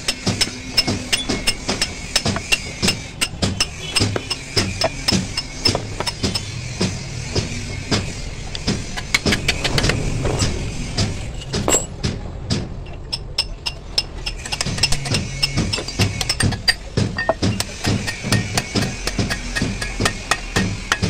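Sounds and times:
hammer striking steel lever: 0:12.9 - 0:21.0.

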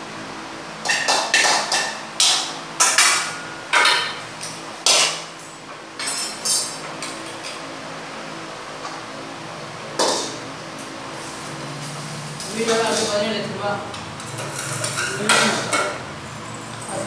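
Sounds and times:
metal spoon clanking on pots: 0:00.8 - 0:04.2, 0:04.8 - 0:05.2, 0:06.0 - 0:07.6, 0:10.0 - 0:10.4, 0:12.4 - 0:13.2, 0:13.9 - 0:17.0.

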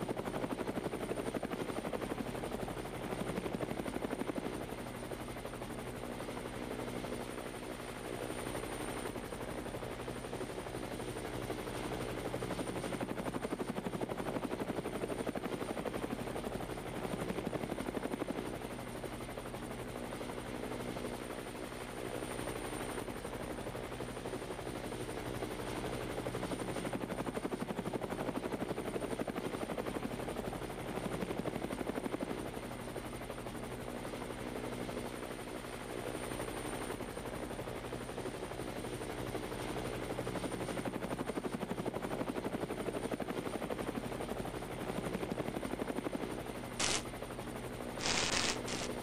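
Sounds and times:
glitch static hiss bursts: 0:46.8 - 0:47.0, 0:48.0 - 0:48.9.

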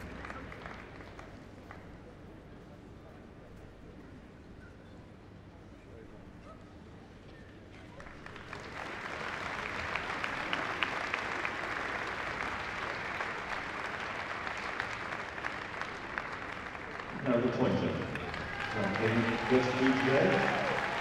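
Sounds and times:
audience applauding: 0:00.0 - 0:01.8, 0:08.0 - 0:21.0.

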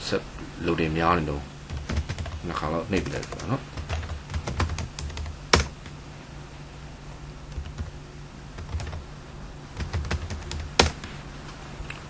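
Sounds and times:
steady low hum: 0:00.0 - 0:12.0
keyboard key presses: 0:01.7 - 0:05.9, 0:09.8 - 0:11.0.

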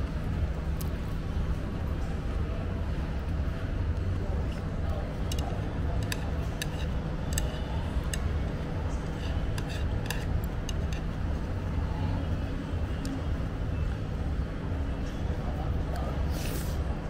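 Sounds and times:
road traffic rumble: 0:00.0 - 0:17.0
chopsticks and spoon clicking on plate: 0:05.3 - 0:08.2, 0:09.2 - 0:11.0.

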